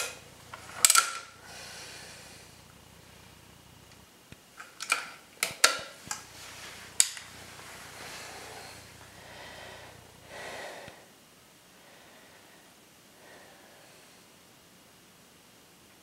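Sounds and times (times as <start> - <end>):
air rifle clicks and clacks: 0.0 - 1.3
faint breathing: 0.2 - 3.5, 6.1 - 14.4.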